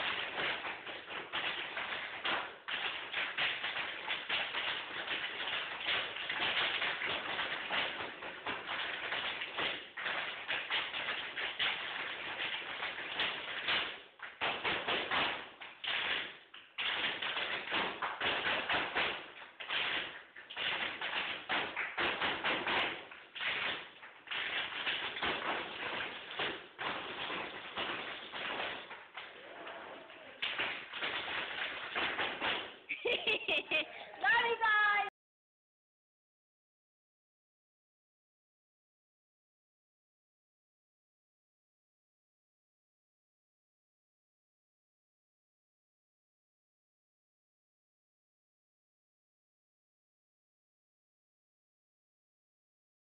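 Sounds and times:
tap shoes on wooden floor: 0:00.0 - 0:29.8, 0:30.4 - 0:32.8.

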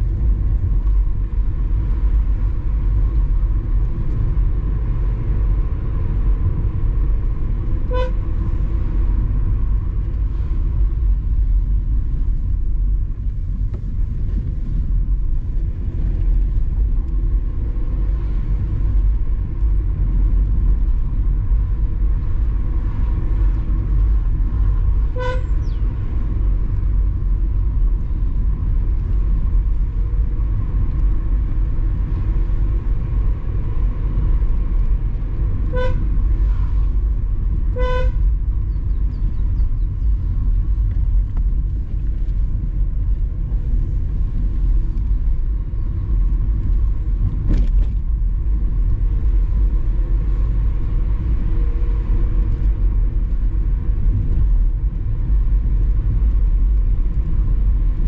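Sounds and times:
car engine and road noise: 0:00.0 - 0:58.0
car horn toots: 0:07.8 - 0:08.3, 0:25.1 - 0:25.7, 0:35.6 - 0:36.2, 0:37.7 - 0:38.4.

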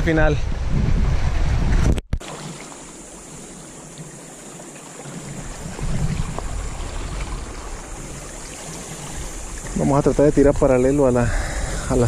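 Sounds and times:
wind on microphone: 0:00.0 - 0:02.2, 0:05.2 - 0:12.0
sea water lapping against rocks: 0:02.2 - 0:10.8.

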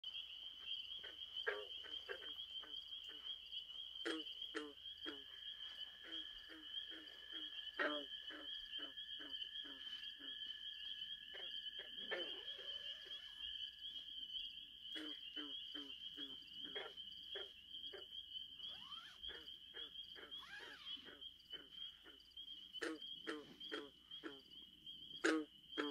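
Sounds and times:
lower insect trill: 0:00.0 - 0:25.9
high insect trill: 0:00.1 - 0:25.9
short low animal calls: 0:20.2 - 0:22.2.

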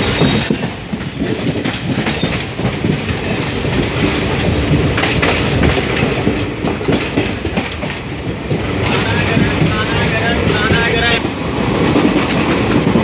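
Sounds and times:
train rumble: 0:00.0 - 0:13.0
wheels clattering over rail joints: 0:00.0 - 0:13.0
high wheel squeal: 0:05.5 - 0:06.4, 0:07.2 - 0:11.1.

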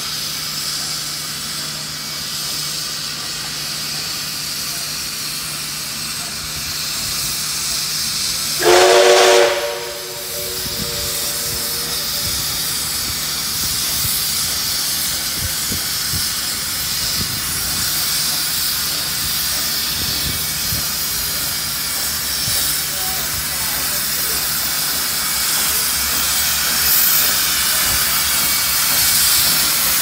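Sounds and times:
steam hissing: 0:00.0 - 0:30.0
steam locomotive whistle: 0:08.6 - 0:12.9.

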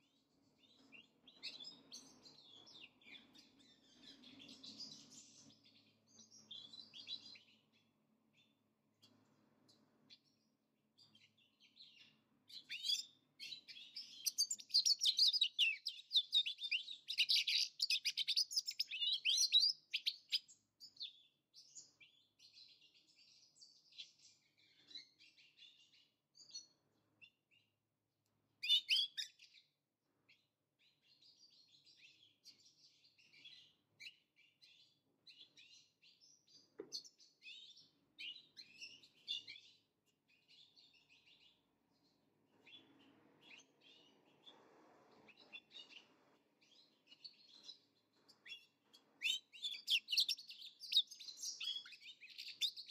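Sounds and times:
goldfinches twittering and singing: 0:12.0 - 0:21.0.

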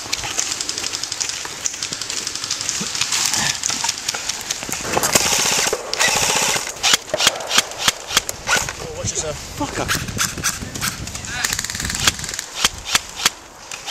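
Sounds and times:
airsoft guns firing: 0:04.7 - 0:08.7.

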